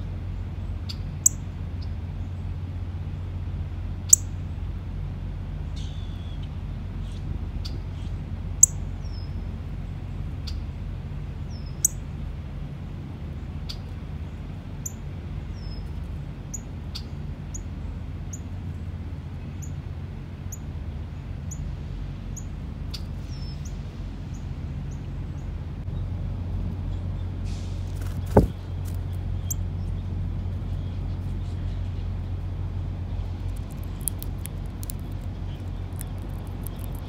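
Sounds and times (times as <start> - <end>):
songbird chip calls: 0.9 - 2.0, 4.1 - 4.4, 5.7 - 9.5, 11.5 - 12.0, 14.8 - 15.9, 22.4 - 23.8, 28.0 - 32.4, 33.4 - 37.0
low rumble: 22.5 - 37.0.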